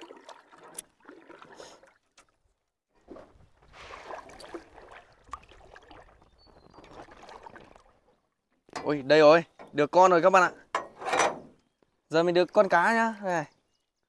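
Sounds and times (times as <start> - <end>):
water splashing and dripping: 0.0 - 9.0.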